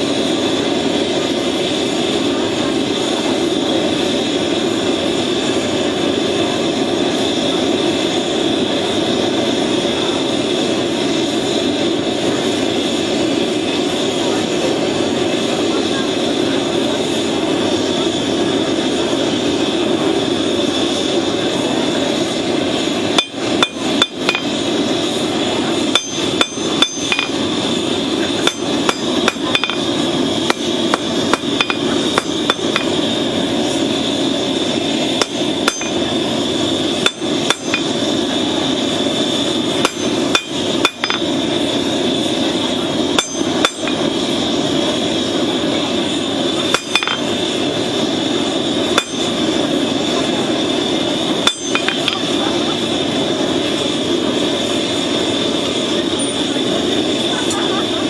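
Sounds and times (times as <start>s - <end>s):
forge roaring: 0.0s - 58.0s
hammer striking steel on anvil: 23.2s - 24.6s, 25.9s - 27.4s, 28.4s - 29.9s, 30.5s - 33.0s, 35.2s - 36.1s, 37.0s - 38.0s, 39.8s - 41.3s, 43.2s - 44.1s, 46.7s - 47.3s, 48.9s - 49.4s, 51.4s - 52.3s.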